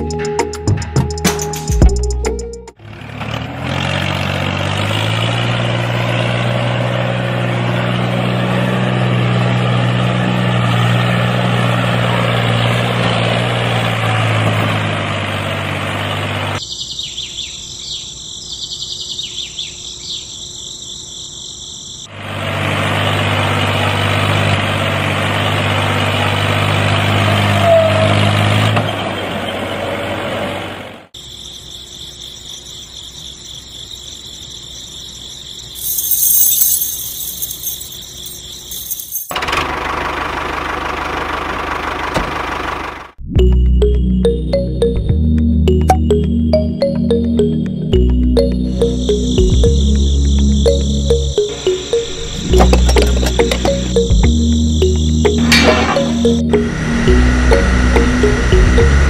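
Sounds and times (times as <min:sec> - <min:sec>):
faint high-pitched chirping: 0:16.6 - 0:22.1, 0:31.2 - 0:39.3.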